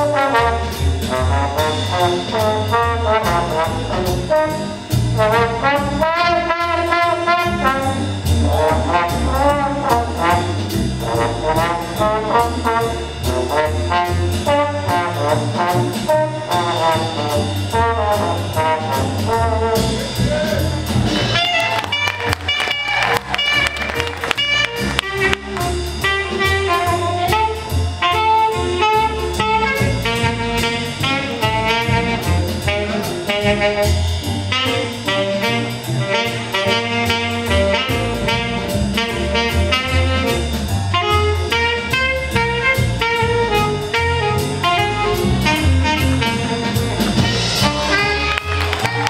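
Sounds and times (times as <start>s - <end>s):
jazz big band playing swing: 0.0s - 49.0s
saxophone lines: 41.0s - 49.0s.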